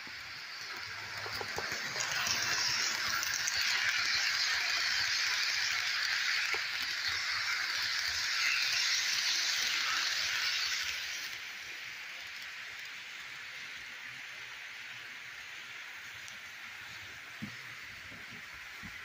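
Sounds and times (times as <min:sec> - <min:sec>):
model train wheels rattling: 0:00.0 - 0:13.6.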